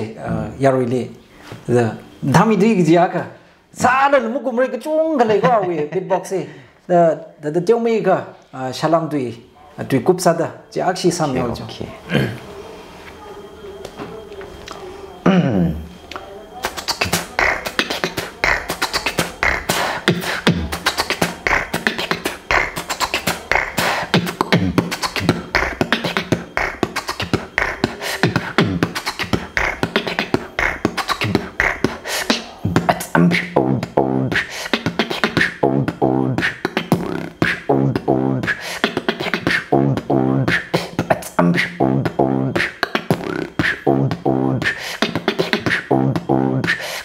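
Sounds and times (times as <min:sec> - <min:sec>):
beatboxing percussive mouth sounds: 0:16.6 - 0:47.0
low vocal bass tones: 0:32.6 - 0:46.8.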